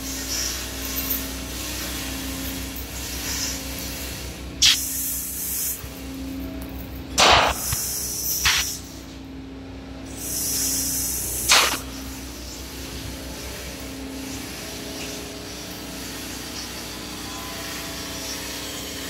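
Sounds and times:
loud bursts of hiss: 7.2s - 8.9s, 10.1s - 12.1s
gas compressor engine running: 9.9s - 19.0s.

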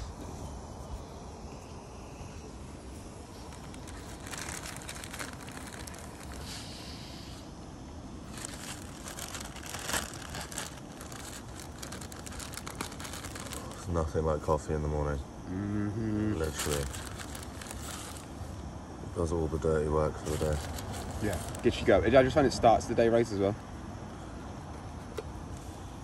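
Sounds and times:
plastic bag crinkling: 3.4s - 6.6s, 8.3s - 13.9s, 16.4s - 18.4s, 20.2s - 21.8s.

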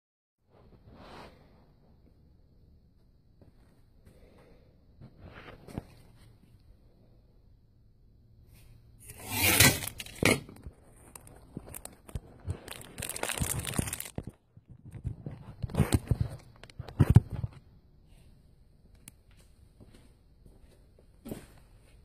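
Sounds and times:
phone rustling against clothing: 9.4s - 17.7s.

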